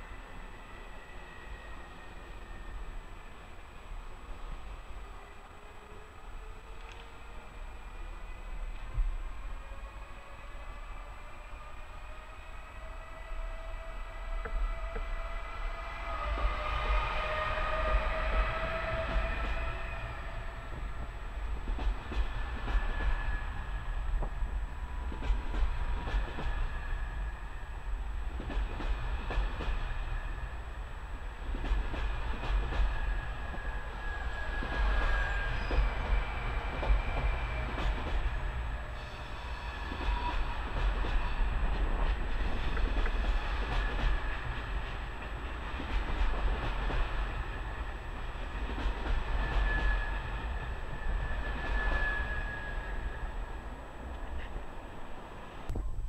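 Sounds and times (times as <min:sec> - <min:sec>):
train wheel rumble: 0:00.0 - 0:56.0
thin high wheel squeal: 0:49.5 - 0:53.2.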